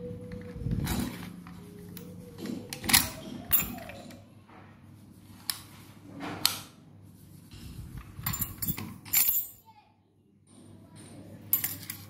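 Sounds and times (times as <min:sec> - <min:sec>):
lock and keys clicking: 0:08.2 - 0:09.6.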